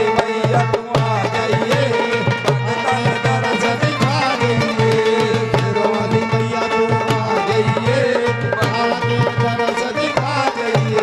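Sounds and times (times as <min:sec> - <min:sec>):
hand drum beating: 0:00.0 - 0:11.0
held melody line: 0:00.0 - 0:11.0.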